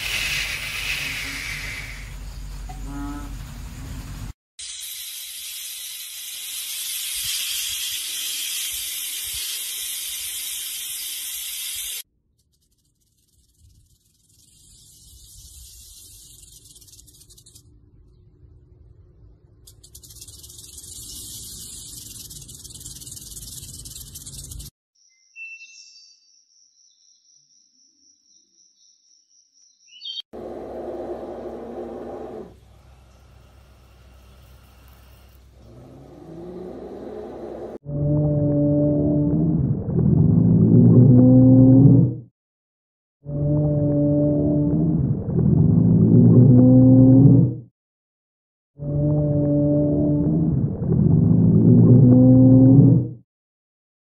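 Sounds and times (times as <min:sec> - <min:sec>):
rattlesnake rattling: 0:00.0 - 0:02.4, 0:04.7 - 0:17.7, 0:19.6 - 0:24.8.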